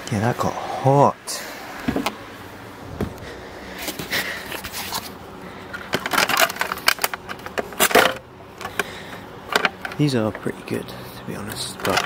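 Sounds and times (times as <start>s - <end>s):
rustling and scraping: 1.7s - 2.2s, 2.8s - 10.5s.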